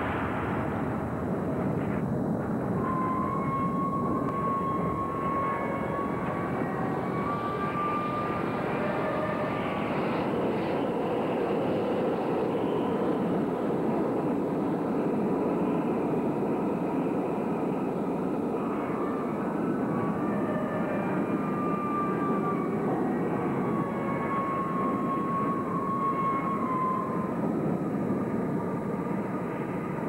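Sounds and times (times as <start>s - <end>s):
steady droning roar: 0.0s - 30.0s
faint wavering high tones: 2.6s - 14.5s.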